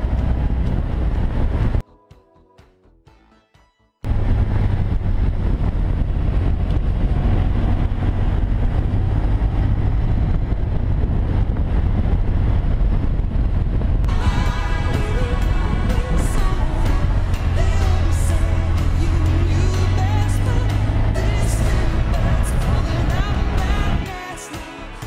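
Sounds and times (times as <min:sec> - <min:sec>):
wind rush on microphone: 0:00.0 - 0:01.8, 0:04.1 - 0:24.1
music: 0:01.8 - 0:04.1, 0:14.1 - 0:25.0
motorcycle engine running: 0:04.1 - 0:24.1.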